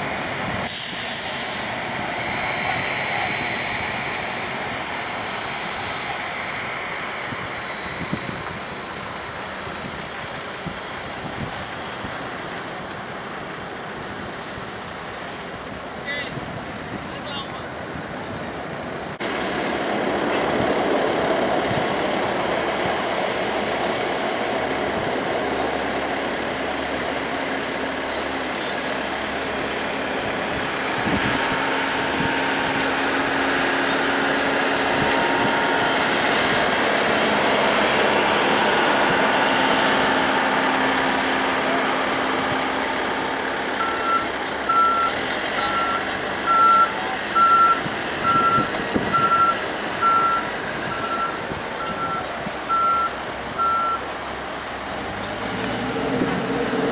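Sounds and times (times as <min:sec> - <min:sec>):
jet engines running: 0:00.0 - 0:12.0, 0:16.7 - 0:52.6
short high beeps: 0:43.8 - 0:54.0.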